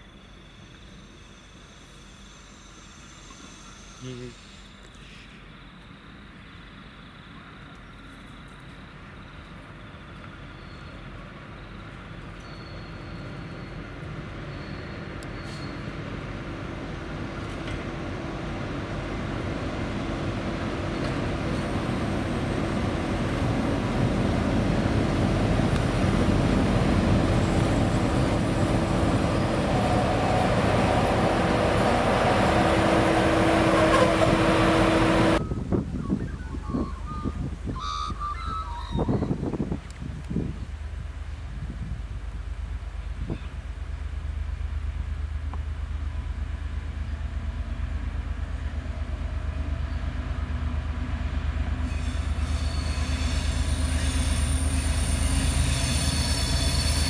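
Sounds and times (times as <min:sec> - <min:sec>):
train engine approaching: 0:00.0 - 0:36.1, 0:39.7 - 0:57.0.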